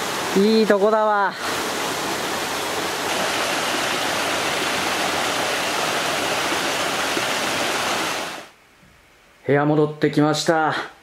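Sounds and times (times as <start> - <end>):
stream rushing over rocks: 0.0 - 8.5.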